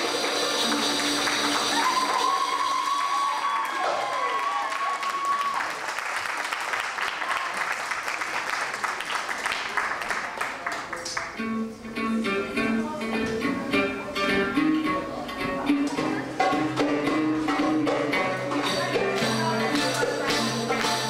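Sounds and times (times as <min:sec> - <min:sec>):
audience applause: 0:00.0 - 0:11.3
hand-drum beats: 0:12.6 - 0:21.0
jingling hand percussion: 0:16.4 - 0:21.0.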